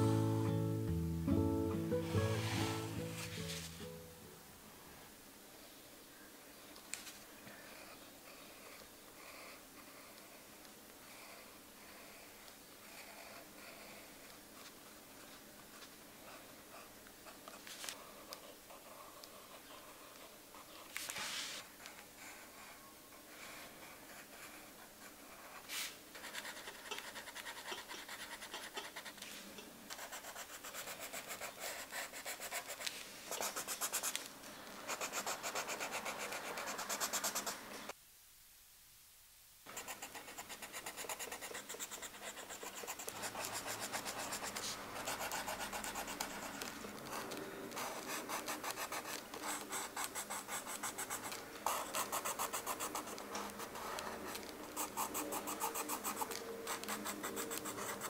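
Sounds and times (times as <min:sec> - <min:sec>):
pencil scratching on paper: 0:23.4 - 0:34.2, 0:34.9 - 0:37.7, 0:39.7 - 0:58.0.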